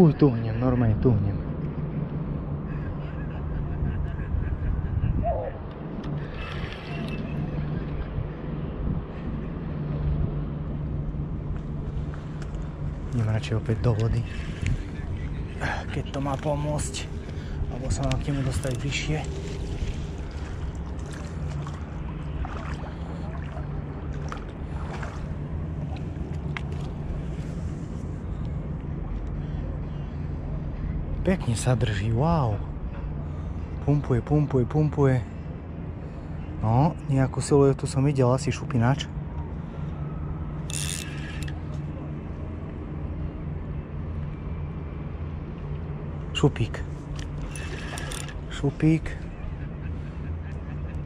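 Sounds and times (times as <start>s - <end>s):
low rumble: 0.0s - 33.8s
water sloshing around legs: 16.0s - 27.8s, 47.0s - 48.7s.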